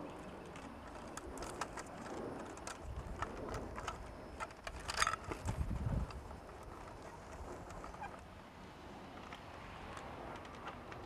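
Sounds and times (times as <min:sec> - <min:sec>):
clicks and rustles of wiring: 0:00.0 - 0:11.0.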